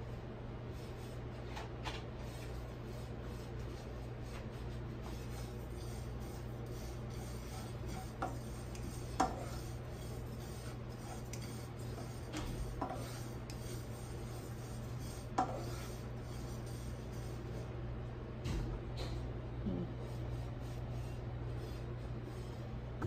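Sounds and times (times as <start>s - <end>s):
spatula tapping pan: 7.0s - 13.8s, 15.0s - 16.5s.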